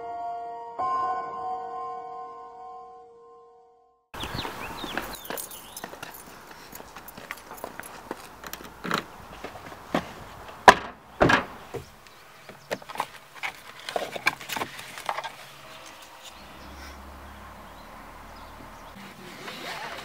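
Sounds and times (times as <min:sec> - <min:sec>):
car door slamming: 0:10.6 - 0:11.9.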